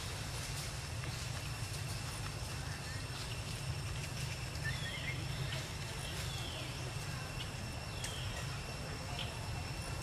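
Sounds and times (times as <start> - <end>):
descending whistled bird calls: 4.4 - 9.4.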